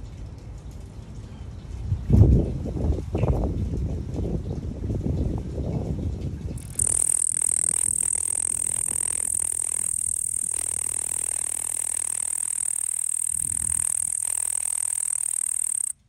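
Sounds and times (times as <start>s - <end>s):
katydid high-pitched trill: 6.6s - 16.0s.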